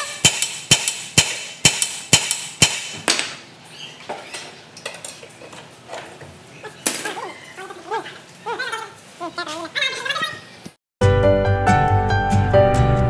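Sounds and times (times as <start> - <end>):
hammer striking steel: 0.0 - 3.4.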